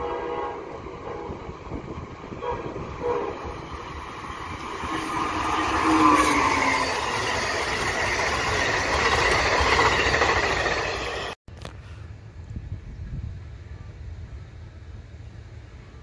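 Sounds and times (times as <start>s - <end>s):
electric train passing at speed: 0.0s - 11.4s.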